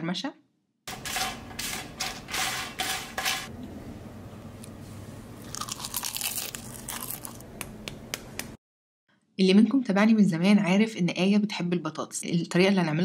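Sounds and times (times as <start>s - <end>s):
knife crunching through potato crust: 5.4s - 7.5s.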